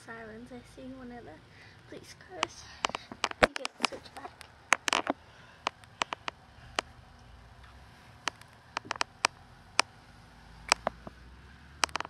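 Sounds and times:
phone handling clicks and taps: 2.4 - 6.9, 8.2 - 9.4, 10.7 - 11.1.

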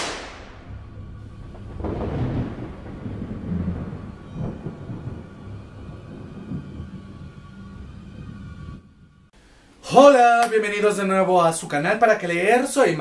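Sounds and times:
low thunder-like rumble: 0.0 - 9.3.

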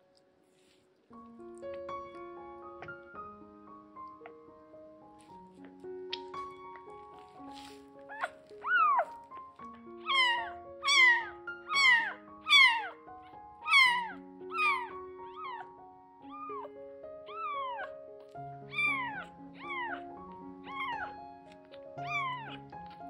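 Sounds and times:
background music with held notes: 0.0 - 23.0
kitten mewing: 7.6 - 9.3, 10.0 - 13.0, 13.6 - 15.7, 16.3 - 16.7, 17.3 - 18.0, 18.6 - 21.1, 21.7 - 23.0.

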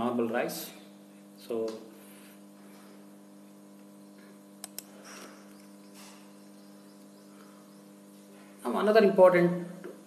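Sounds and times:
low electrical hum: 0.0 - 10.0
quick clicks: 4.6 - 5.0.

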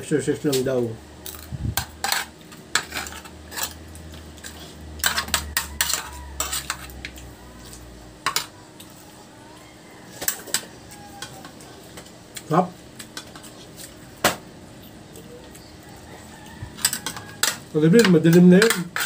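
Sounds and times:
cutlery clinking on steel plates: 4.4 - 8.6, 10.1 - 12.1, 16.6 - 19.0.

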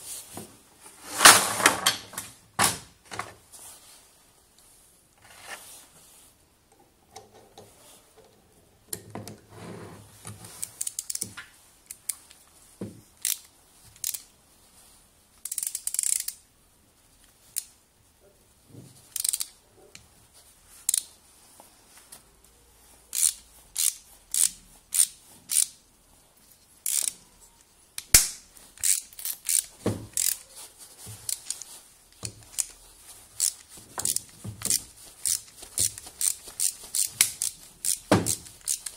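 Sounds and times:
metal tool clicking and scraping: 15.4 - 16.4, 26.8 - 27.2, 28.8 - 30.4, 31.2 - 32.8, 33.4 - 38.9.

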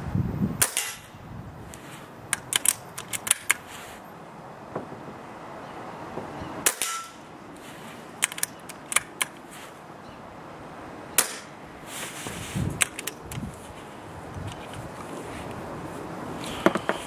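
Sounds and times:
air rifle shots: 0.6 - 1.2, 6.6 - 7.2, 11.2 - 11.6
rifle lever clicks: 2.3 - 3.6, 8.2 - 9.4, 12.8 - 13.4.

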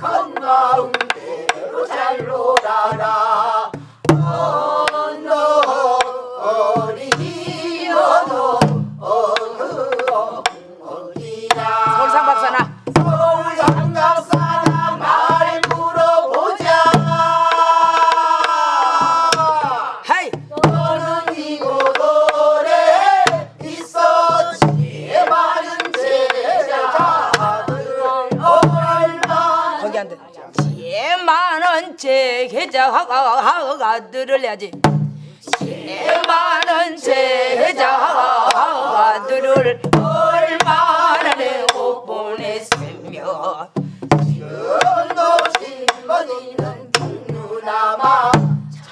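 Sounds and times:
woman leading group singing: 0.0 - 34.4, 35.5 - 48.9
barrel drum thumps: 2.2 - 5.0, 6.7 - 10.6, 11.2 - 29.6, 30.6 - 30.9, 34.8 - 36.8, 39.6 - 41.8, 42.4 - 48.8.

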